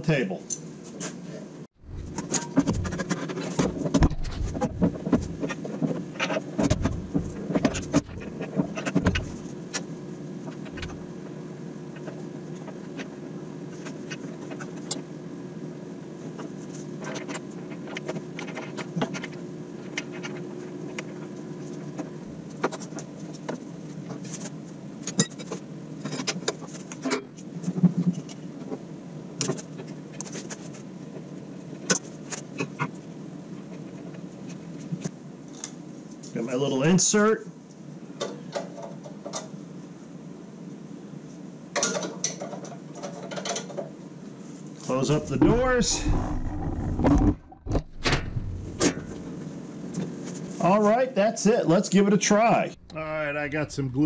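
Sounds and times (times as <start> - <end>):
steady hum: 0.8 - 22.7, 44.3 - 50.6, 52.5 - 54.0
heavy metal clunks and knocks: 1.8 - 5.4, 6.6 - 8.2, 45.3 - 49.2.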